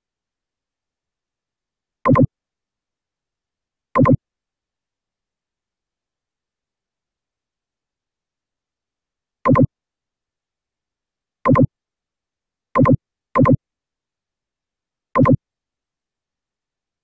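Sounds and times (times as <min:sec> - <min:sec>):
synthetic pop blips: 0:02.1 - 0:02.3, 0:04.0 - 0:04.2, 0:09.5 - 0:09.7, 0:11.5 - 0:11.7, 0:12.8 - 0:13.6, 0:15.2 - 0:15.4.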